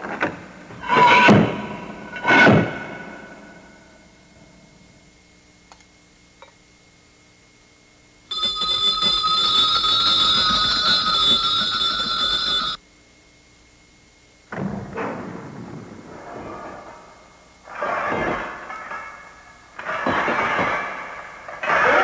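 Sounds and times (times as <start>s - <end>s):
brass bells jangling: 8.3s - 12.8s.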